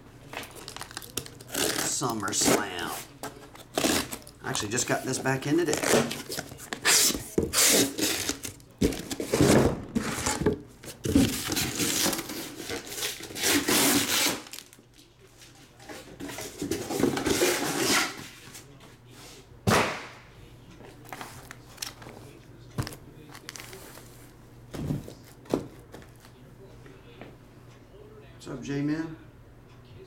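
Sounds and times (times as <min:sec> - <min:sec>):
cardboard and plastic wrap rustling: 0:00.2 - 0:14.8, 0:20.9 - 0:26.4
boxes knocking down: 0:07.8 - 0:10.5.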